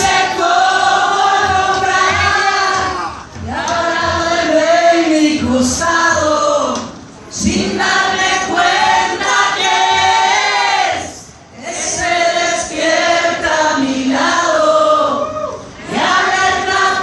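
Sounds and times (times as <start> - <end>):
concert crowd singing along: 0.0 - 17.0.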